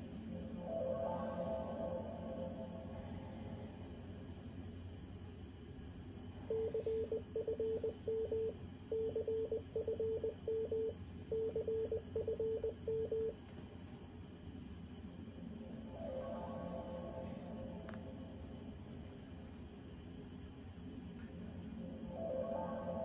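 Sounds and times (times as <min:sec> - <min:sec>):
morse code beeps: 0:06.5 - 0:13.4.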